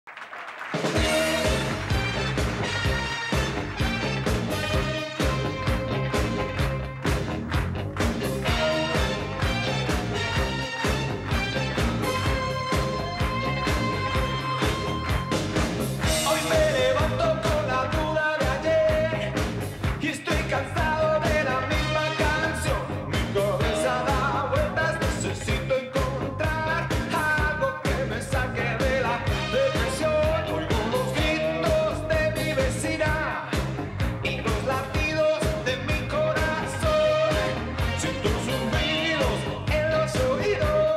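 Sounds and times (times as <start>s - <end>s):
pop-rock band playing: 0.7s - 40.9s
man singing: 16.1s - 40.9s.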